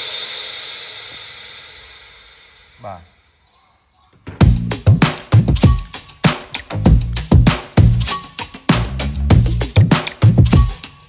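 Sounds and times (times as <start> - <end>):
electronic music with drum-machine beat: 4.4 - 11.0.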